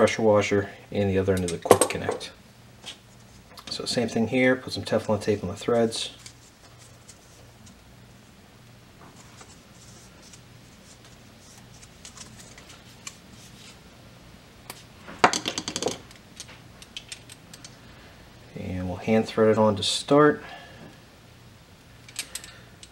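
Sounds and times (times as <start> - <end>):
tape rustling: 6.1 - 7.8, 9.0 - 13.8.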